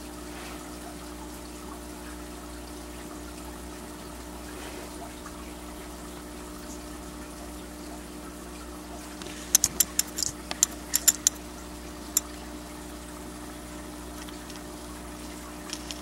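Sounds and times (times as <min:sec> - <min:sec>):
aquarium filter pump humming: 0:00.0 - 0:16.0
sharp clicks: 0:09.5 - 0:11.4.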